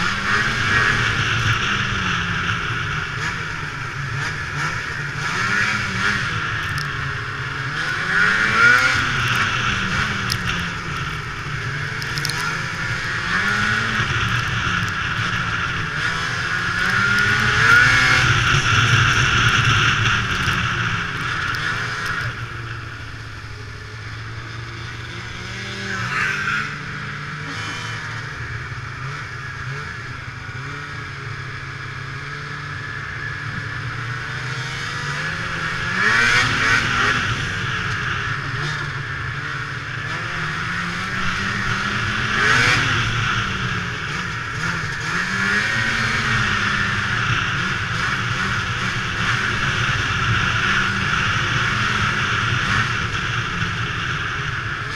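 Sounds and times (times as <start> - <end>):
snowmobile engine revving: 0.0 - 54.9.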